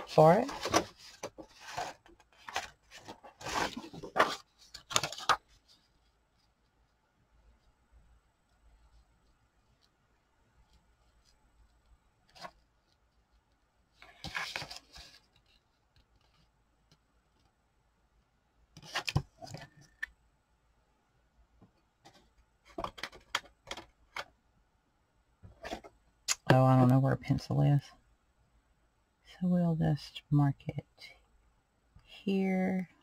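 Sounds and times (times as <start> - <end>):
paper rustling and sliding: 0.4 - 6.1, 14.0 - 16.4.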